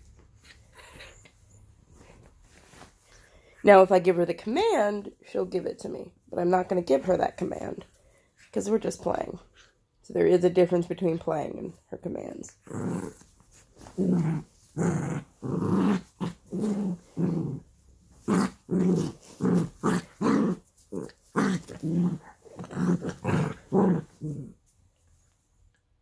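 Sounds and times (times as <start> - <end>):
small dog play-growling: 0.4 - 2.8, 12.5 - 24.6.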